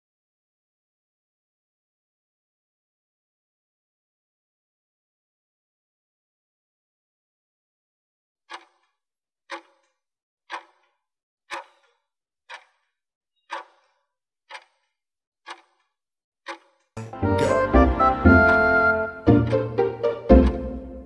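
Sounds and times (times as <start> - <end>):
clock ticking: 8.5 - 8.9, 9.5 - 9.9, 10.5 - 10.9, 11.5 - 12.8, 13.4 - 14.9, 15.5 - 15.9, 16.5 - 21.0
music: 17.0 - 21.0.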